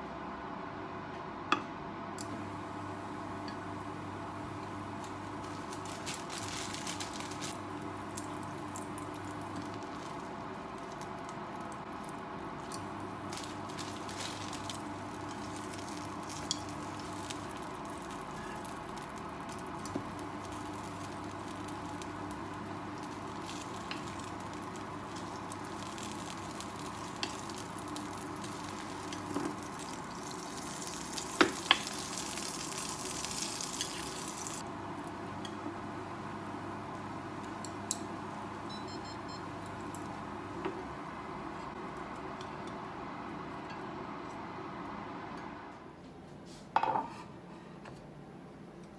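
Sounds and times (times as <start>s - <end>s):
butter sizzling in frying pan: 4.8s - 38.6s.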